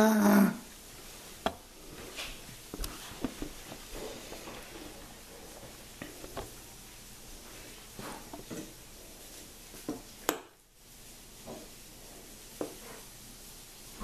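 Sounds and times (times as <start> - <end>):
faint shuffling: 0.9 - 9.8.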